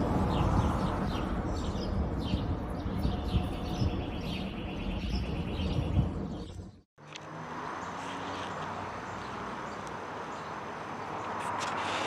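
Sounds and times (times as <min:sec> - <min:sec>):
wind on microphone: 0:00.0 - 0:06.8
bird trill: 0:00.3 - 0:06.8
small birds chirping: 0:00.3 - 0:06.8.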